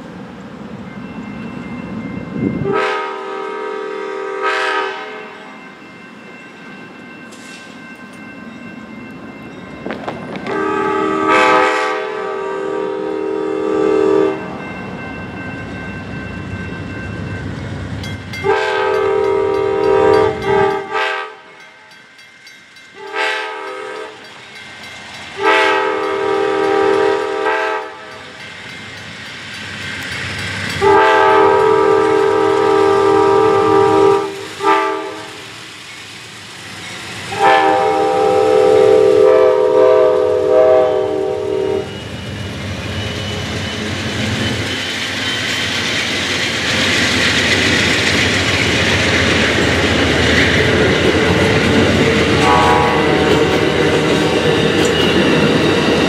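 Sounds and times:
locomotive air horn blasts: 2.6 - 5.4, 10.4 - 14.4, 18.4 - 21.6, 23.0 - 24.2, 25.4 - 28.1, 30.8 - 35.4, 37.3 - 42.0, 52.4 - 53.7
locomotive engines rumbling: 5.7 - 56.0.

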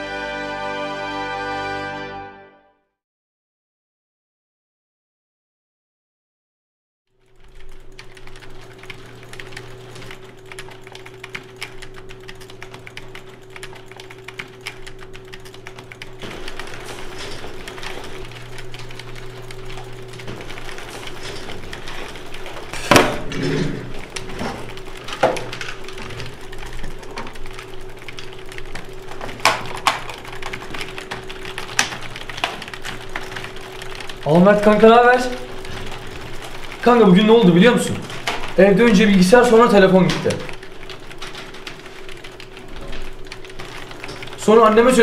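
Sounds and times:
keyboard typing clatter: 7.2 - 45.0
steady electrical hum: 7.2 - 45.0
loud knock: 22.8 - 23.8.

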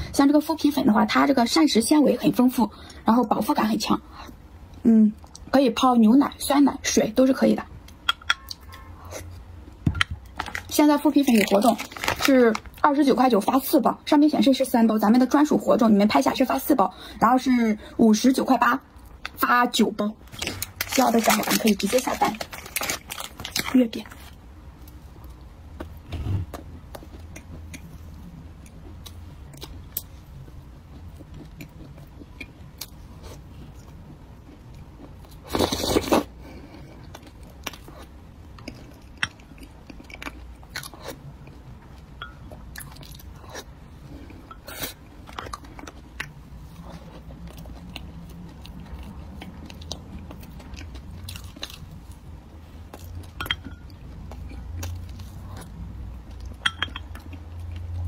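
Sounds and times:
steady low hum: 14.9 - 35.6
chewing crunches: 37.0 - 41.7.

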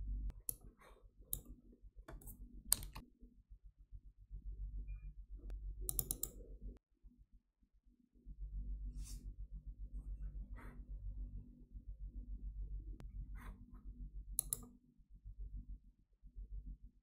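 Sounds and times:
low hum: 0.0 - 0.6, 3.9 - 6.8, 8.2 - 17.0
mouse and keyboard clicks: 2.1 - 3.0, 5.9 - 6.4, 14.4 - 14.7.

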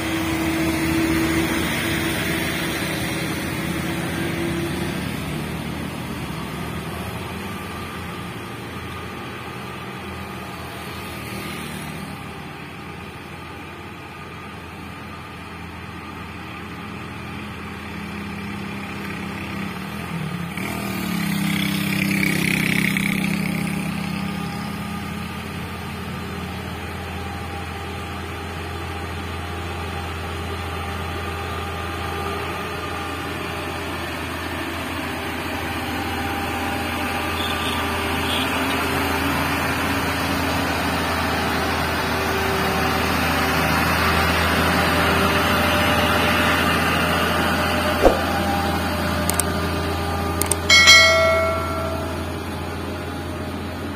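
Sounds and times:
truck diesel engine pulling uphill: 0.0 - 53.9
motorcycle passing: 18.7 - 24.5, 50.7 - 52.9.

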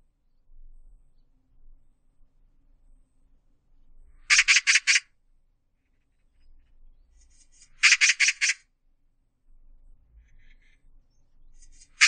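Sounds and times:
magpie chattering call: 4.3 - 5.0, 7.5 - 8.6.

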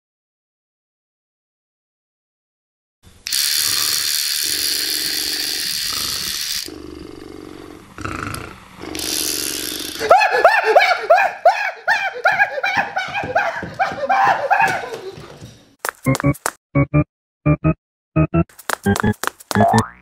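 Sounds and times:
toy beetle buzzing whir: 3.2 - 10.1
high rising and falling cries: 10.0 - 14.9.

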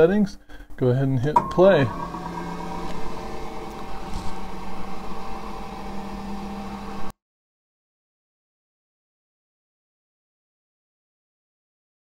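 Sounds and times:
motor and fan humming: 0.0 - 7.1.

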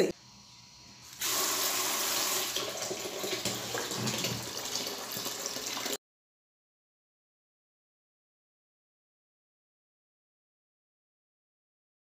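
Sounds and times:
water running into metal bucket: 1.1 - 6.0.

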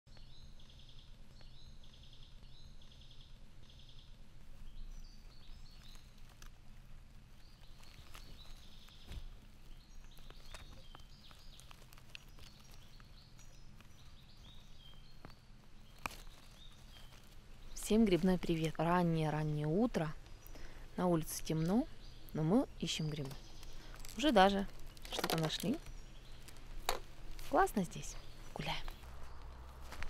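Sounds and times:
faint birdsong: 0.1 - 30.0
steady low hum: 0.1 - 30.0
light clicks and rustles: 23.2 - 30.0.

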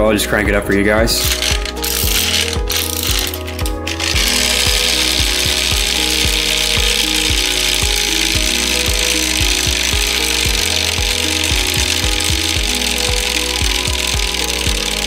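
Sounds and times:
clockwork escapement chattering: 1.2 - 15.0.

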